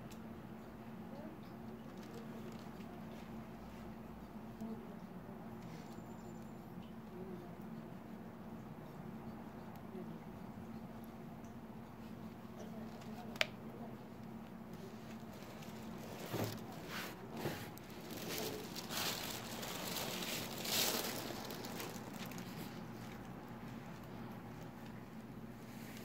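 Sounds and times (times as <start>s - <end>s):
soft rubbing and rustling: 1.7s - 4.4s, 14.3s - 26.0s.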